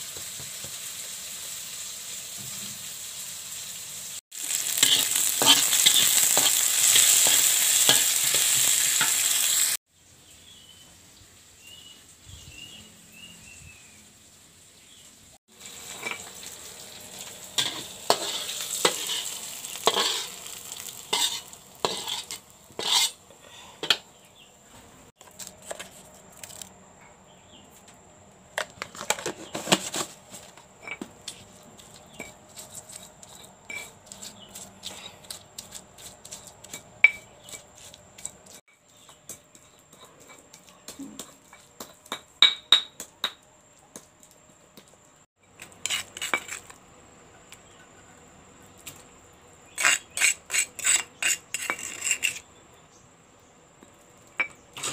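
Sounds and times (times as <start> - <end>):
stone pestle scraping in mortar: 4.4 - 9.4, 17.6 - 23.2, 28.8 - 42.3, 45.5 - 46.8, 49.7 - 52.5.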